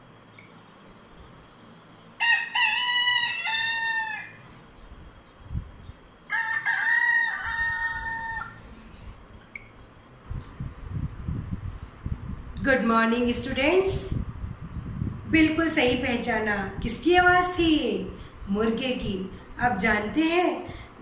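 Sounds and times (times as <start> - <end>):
rooster crowing: 2.2 - 4.5, 6.3 - 9.1.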